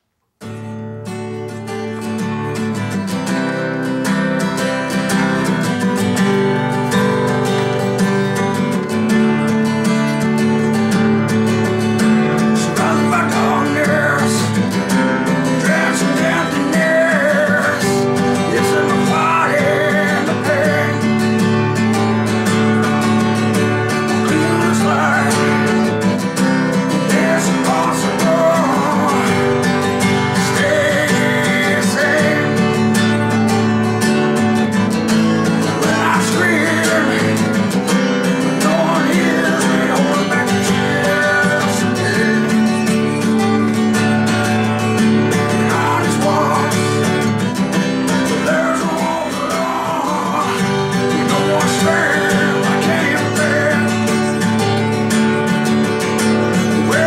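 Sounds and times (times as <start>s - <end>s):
acoustic guitar strumming: 0.4s - 57.0s
man singing: 12.0s - 33.6s, 35.0s - 43.6s, 45.1s - 55.1s, 56.5s - 57.0s.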